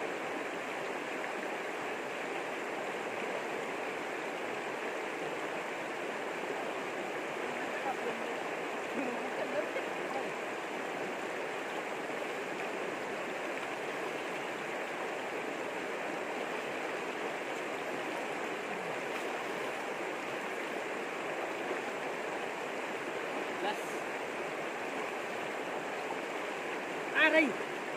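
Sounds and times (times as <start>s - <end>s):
river rushing over rocks: 0.0s - 27.9s.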